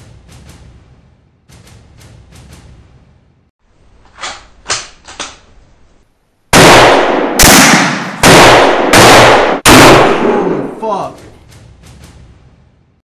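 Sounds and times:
loud rifle shots: 6.5 - 10.8.

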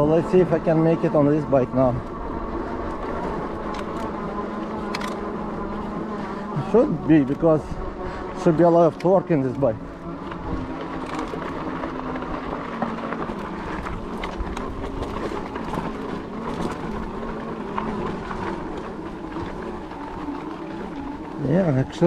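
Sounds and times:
low electric motor hum: 0.0 - 22.0
tyres rolling on dirt: 0.0 - 22.0
small clicks: 2.8 - 5.3.

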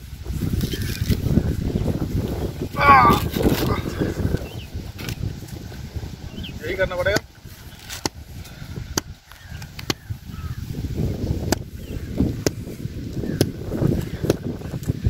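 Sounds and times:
husk fibres rustling: 0.0 - 15.0
wind buffeting microphone: 0.0 - 15.0
coconut husk cracking: 2.8 - 5.9, 6.7 - 10.6, 11.4 - 15.0.

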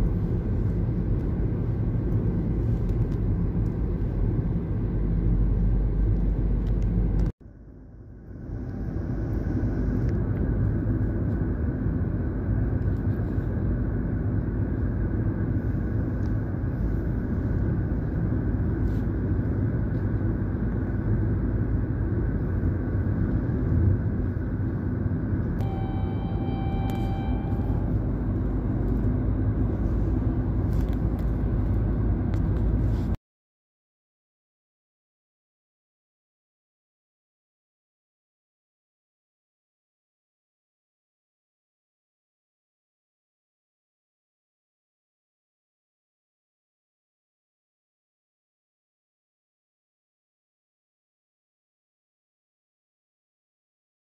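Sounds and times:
road and wind noise: 0.0 - 33.2
vehicle rumble from inside: 0.0 - 33.2
vehicle horn: 25.6 - 28.4.

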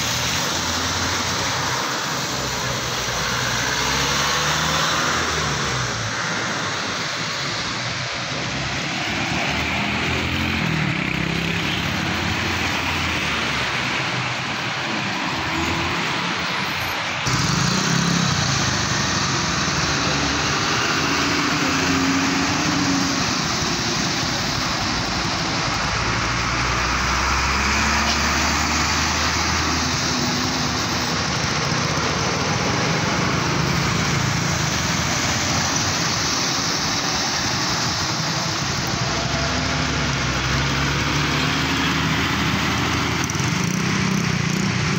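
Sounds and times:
heavy truck passing: 0.0 - 44.9
tyres hissing on wet road: 0.0 - 44.9
vehicle engines in slow traffic: 0.0 - 44.9.

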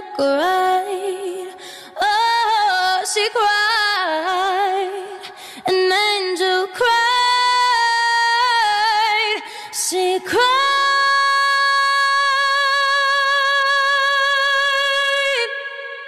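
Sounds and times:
woman singing a cappella: 0.0 - 16.0
quick breath: 1.6 - 2.0, 5.2 - 5.7.

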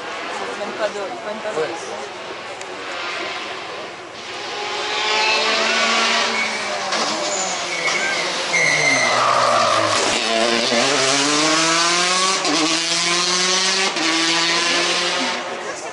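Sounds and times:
rally car engine revving: 2.2 - 15.9
tyre squeal: 5.7 - 11.0.

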